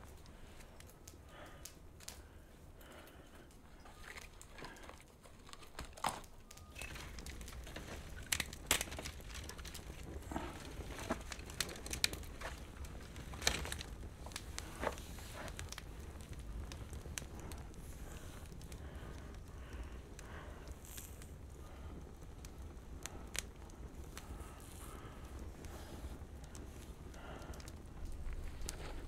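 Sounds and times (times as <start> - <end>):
twigs and straw crackling: 0.0 - 29.0.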